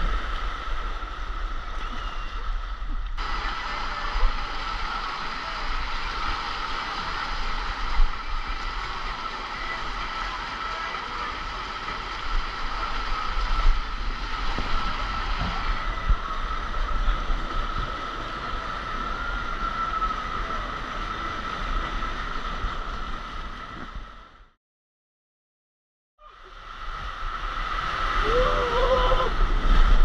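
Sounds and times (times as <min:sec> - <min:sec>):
water rushing down a slide: 0:03.2 - 0:24.2, 0:26.3 - 0:30.0.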